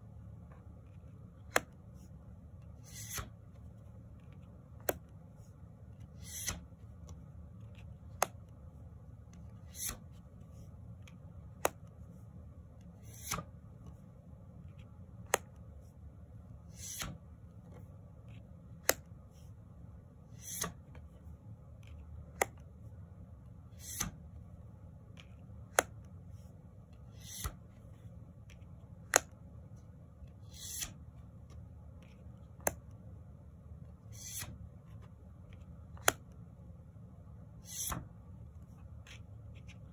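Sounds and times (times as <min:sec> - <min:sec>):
faint room hum: 0:00.0 - 0:39.9
cards flipping with clicks: 0:00.6 - 0:01.8, 0:02.6 - 0:05.2, 0:05.9 - 0:08.6, 0:09.3 - 0:10.4, 0:11.0 - 0:12.0, 0:12.8 - 0:14.0, 0:14.6 - 0:15.7, 0:16.7 - 0:19.2, 0:20.3 - 0:21.1, 0:21.8 - 0:22.8, 0:23.8 - 0:24.2, 0:25.1 - 0:26.2, 0:26.9 - 0:27.8, 0:28.4 - 0:29.5, 0:30.3 - 0:33.0, 0:34.1 - 0:36.4, 0:37.6 - 0:38.1, 0:38.8 - 0:39.9
cards brushing swishes: 0:01.5 - 0:03.4, 0:05.9 - 0:06.8, 0:09.4 - 0:10.7, 0:13.0 - 0:13.5, 0:16.7 - 0:17.2, 0:20.3 - 0:20.9, 0:23.7 - 0:24.2, 0:25.2 - 0:28.0, 0:30.3 - 0:31.1, 0:34.0 - 0:35.1, 0:37.6 - 0:39.9.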